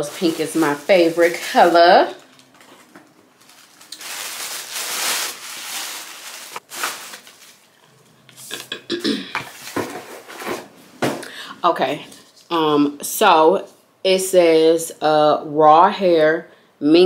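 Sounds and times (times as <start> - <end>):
packaging crinkling and rustling: 0.0 - 8.7, 9.5 - 10.4.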